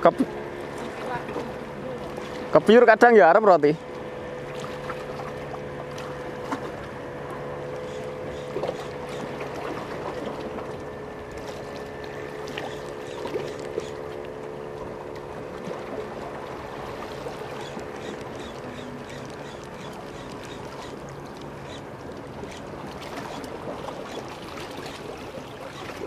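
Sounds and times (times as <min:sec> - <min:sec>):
fishing reel cranking hum: 0:17.2 - 0:26.0.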